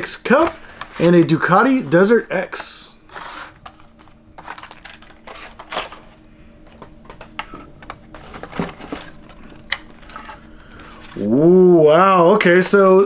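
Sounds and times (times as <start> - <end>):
plastic packaging clicks and rustles: 3.6 - 11.2.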